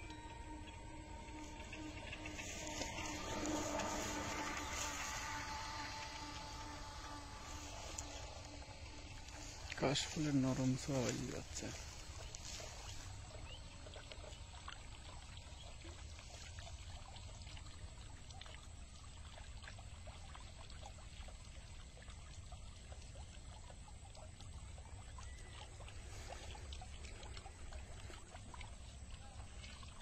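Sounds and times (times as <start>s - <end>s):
low rumble: 0.0s - 10.4s
water drips and splashes: 0.0s - 30.0s
water trickling and pouring: 0.0s - 30.0s.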